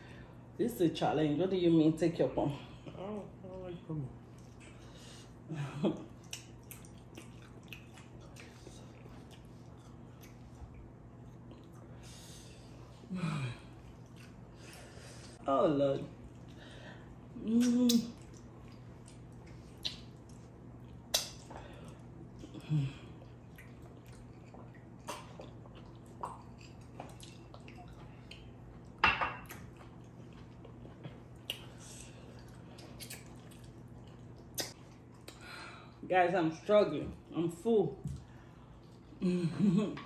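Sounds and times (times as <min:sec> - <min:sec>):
steady low hum: 0:00.0 - 0:40.0
mouth eating sounds: 0:06.0 - 0:11.8, 0:17.3 - 0:28.9, 0:29.8 - 0:35.4.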